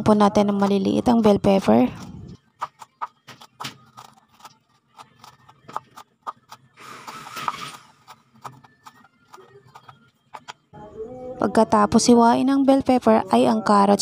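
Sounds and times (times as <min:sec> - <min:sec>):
knife chopping on cutting board: 0:02.6 - 0:10.5.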